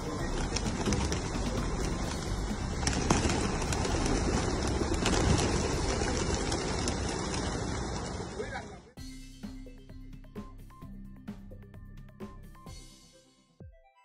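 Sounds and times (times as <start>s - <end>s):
pigeons cooing: 0.0s - 8.4s
wings flapping: 0.0s - 8.9s.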